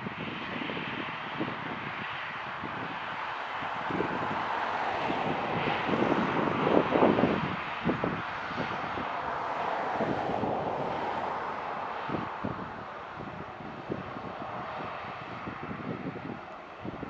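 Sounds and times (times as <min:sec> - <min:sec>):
jet engines at takeoff power: 0:00.0 - 0:17.0
wind buffeting microphone: 0:00.0 - 0:17.0.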